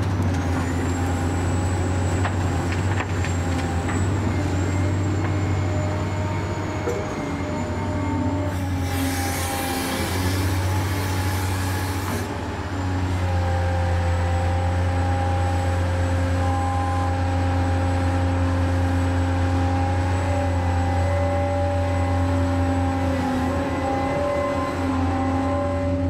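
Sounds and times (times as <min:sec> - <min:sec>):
low engine-like drone: 0:00.0 - 0:26.0.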